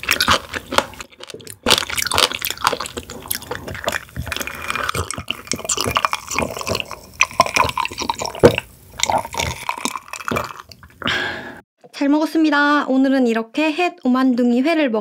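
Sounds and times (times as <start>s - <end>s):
wet lip clicks: 0.0s - 11.0s
person swallowing and gulping: 0.0s - 11.5s.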